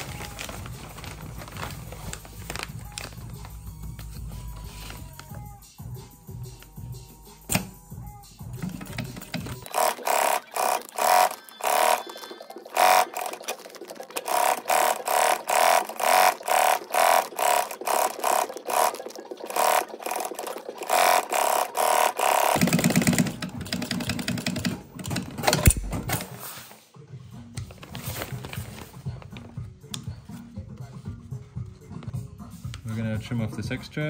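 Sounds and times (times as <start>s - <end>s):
sewing machine stitching: 8.6s - 26.4s.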